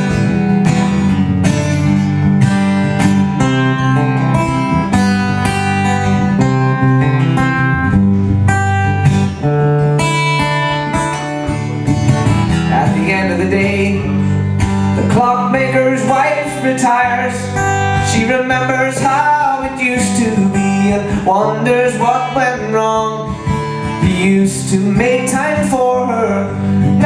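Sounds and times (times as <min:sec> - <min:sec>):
acoustic guitar strumming chords: 0:00.0 - 0:27.0.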